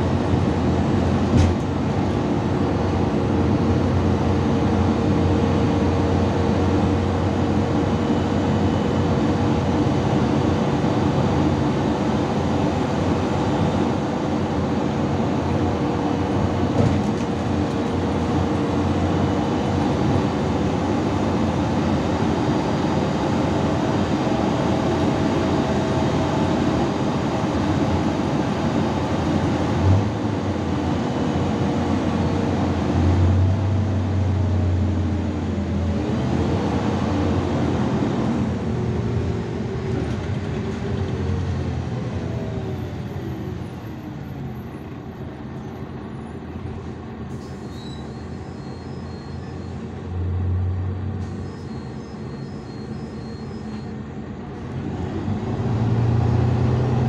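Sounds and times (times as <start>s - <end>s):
bus engine and road noise: 0.0s - 57.0s
bus bump: 1.2s - 2.0s, 16.6s - 18.1s.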